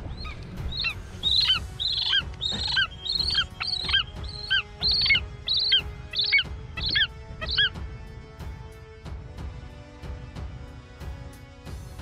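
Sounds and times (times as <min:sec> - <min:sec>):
bird chirping: 0:00.0 - 0:07.7.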